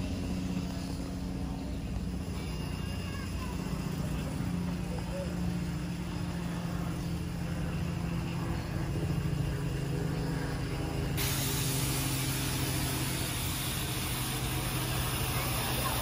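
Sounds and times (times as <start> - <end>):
steady low hum: 0.0 - 16.0
model locomotive hissing steam: 11.2 - 16.0.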